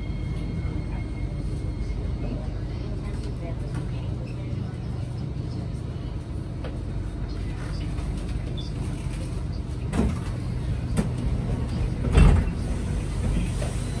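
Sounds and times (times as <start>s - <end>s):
low hum of standing train: 0.0s - 14.0s
train sliding doors opening: 7.7s - 14.0s.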